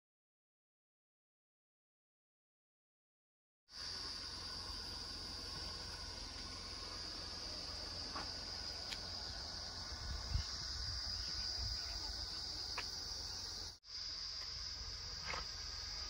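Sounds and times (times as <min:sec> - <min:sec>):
insects droning: 0:03.7 - 0:16.0.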